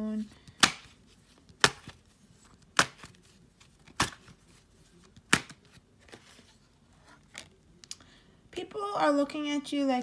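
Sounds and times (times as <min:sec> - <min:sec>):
cards being shuffled: 0:00.2 - 0:07.6.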